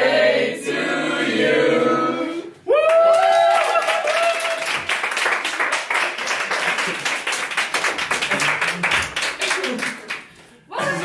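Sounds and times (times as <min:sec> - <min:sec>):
group of people singing: 0:00.0 - 0:02.6.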